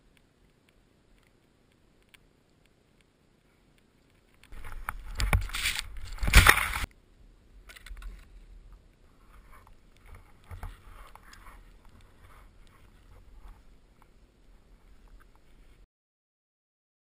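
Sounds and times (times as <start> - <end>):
rush of snow and wind: 0.0 - 15.9.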